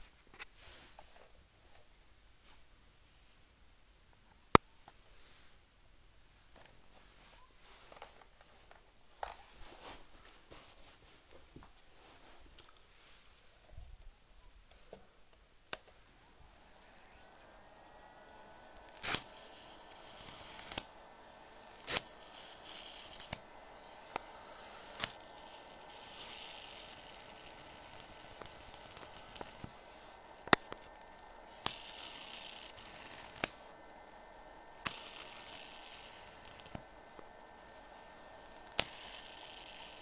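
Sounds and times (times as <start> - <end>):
faint steady whine: 0.0 - 40.0
electric arc snaps: 15.7 - 40.0
electric arc hissing: 16.0 - 40.0.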